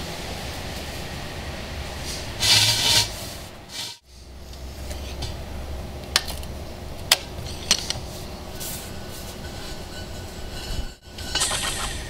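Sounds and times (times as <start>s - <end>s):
steady low rumble: 3.3s - 12.0s.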